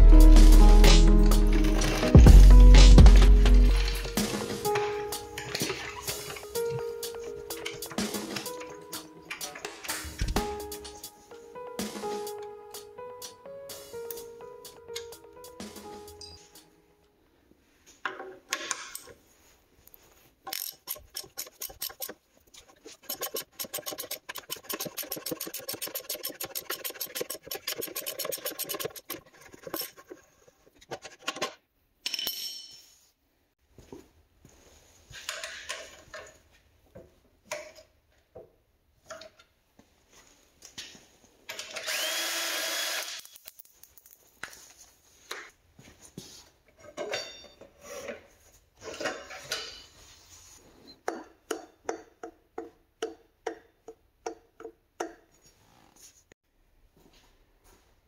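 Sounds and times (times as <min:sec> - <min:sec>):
power tool whining: 0:41.7 - 0:43.4.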